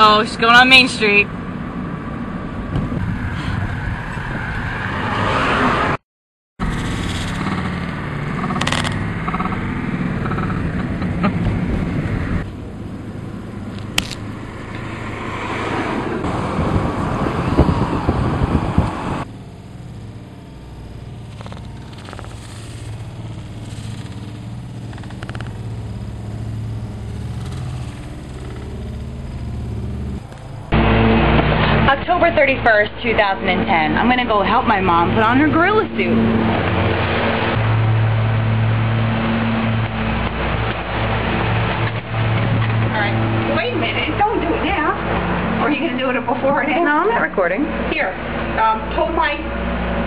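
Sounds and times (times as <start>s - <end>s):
car engine and road noise: 0.0s - 6.0s, 6.6s - 50.0s
sharp click: 7.0s - 9.6s.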